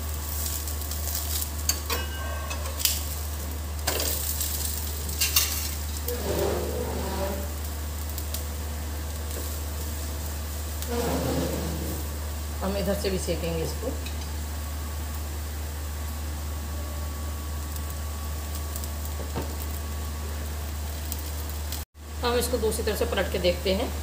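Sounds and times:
flatbread sizzling in oil: 0.0 - 24.0
spatula scraping griddle: 3.9 - 8.1, 10.8 - 12.2.

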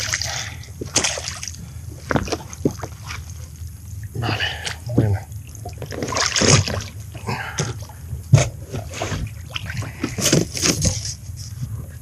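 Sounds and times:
water splashing and dripping: 0.0 - 3.4, 5.4 - 8.0.

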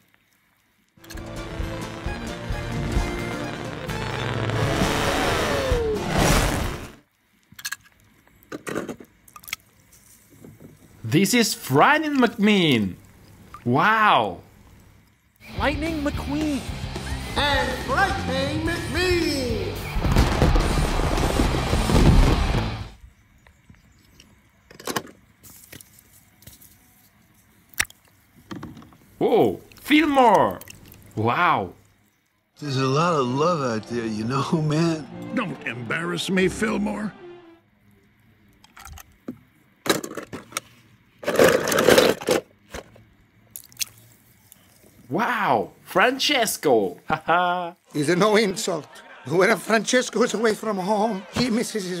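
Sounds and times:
loud cartoon soundtrack: 1.2 - 7.0, 15.5 - 22.9, 32.8 - 37.6
small splashes in water: 43.5 - 44.2.

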